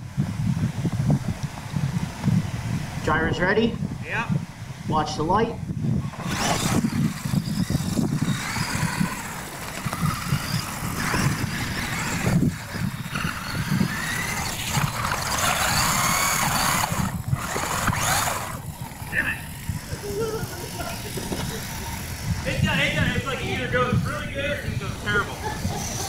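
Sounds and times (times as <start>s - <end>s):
tires rumbling on dirt: 5.6s - 26.0s
rc truck motor whine: 5.9s - 26.0s.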